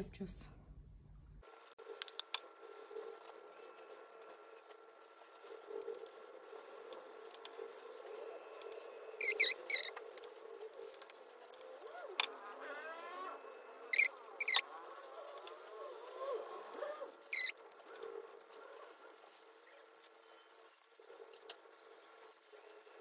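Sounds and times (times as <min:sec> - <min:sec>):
spatula scraping buttercream: 0:02.7 - 0:18.1.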